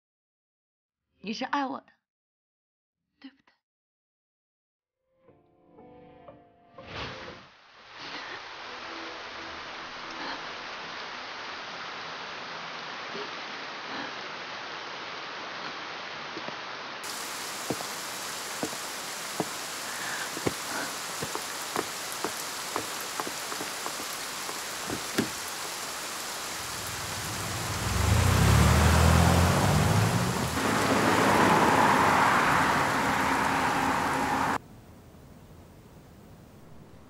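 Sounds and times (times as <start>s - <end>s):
heavy rain: 7.7s - 34.6s
tyres hissing on wet road: 7.7s - 34.6s
drips tapping: 17.1s - 25.6s
car engine rumbling: 26.4s - 34.6s.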